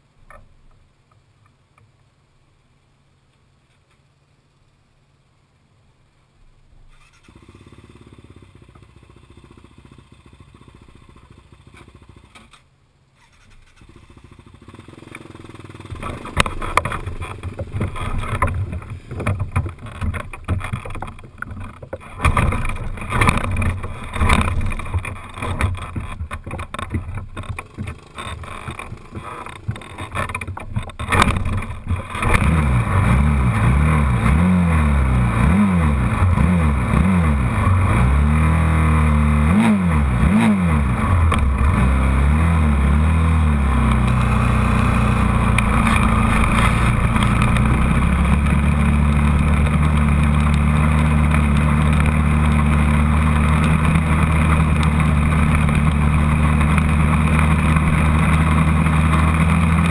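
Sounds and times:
quad engine revving: 13.2s - 59.9s
low rumble with thumps: 15.6s - 59.9s.

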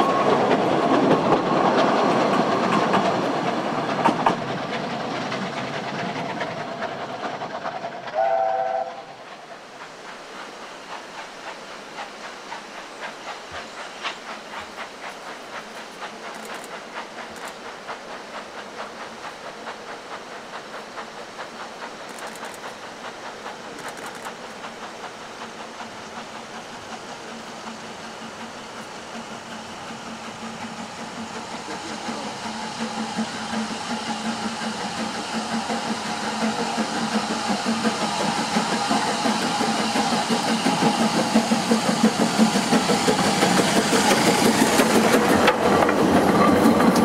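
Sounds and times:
steam locomotive exhaust chuffs: 0.0s - 47.0s
steam whistle: 8.2s - 9.2s.

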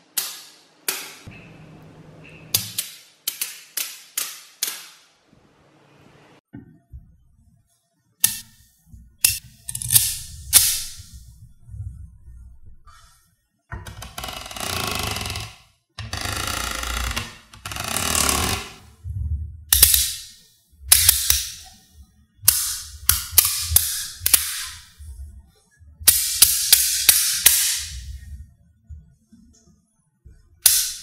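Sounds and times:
magnets clicking together: 9.2s - 11.1s, 19.7s - 20.3s, 20.9s - 21.6s, 22.5s - 24.9s, 30.6s - 31.0s.

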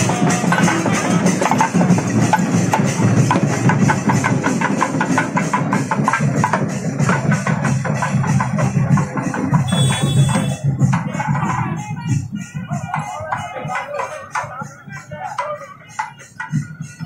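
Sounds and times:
fast percussion music: 0.0s - 17.0s.

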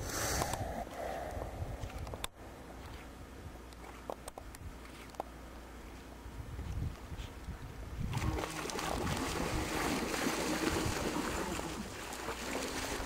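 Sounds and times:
water splashing: 8.1s - 13.0s.

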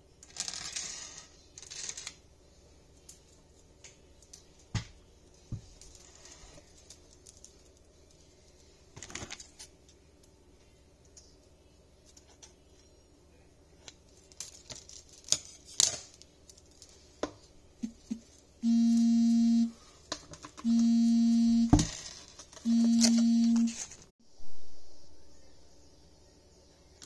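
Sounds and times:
long electronic beeps: 18.6s - 19.8s, 20.6s - 21.9s, 22.6s - 23.8s.

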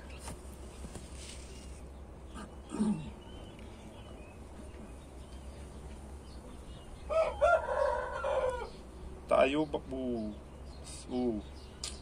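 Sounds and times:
low animal call: 2.2s - 3.6s.

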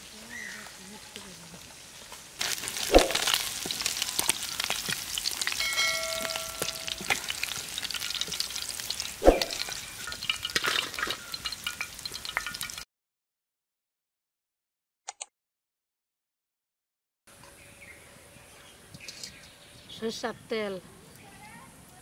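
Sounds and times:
fish frying in hot oil: 0.0s - 12.9s.

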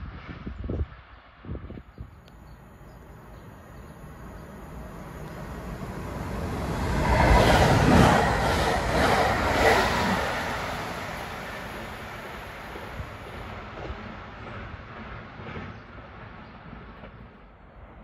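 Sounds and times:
electric train passing: 2.2s - 15.4s
train wheels on rails: 2.3s - 16.3s.

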